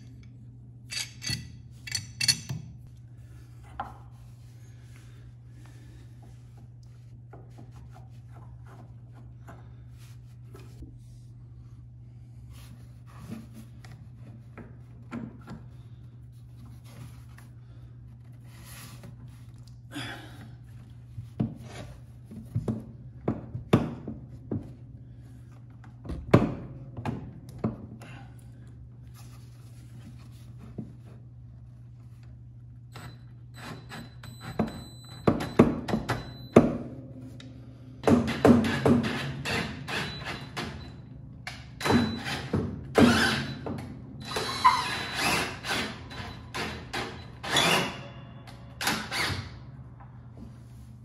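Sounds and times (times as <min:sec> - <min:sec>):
steady low hum: 0:00.0 - 0:35.2, 0:36.2 - 0:42.2
tool handling clicks and knocks: 0:00.1 - 0:02.9.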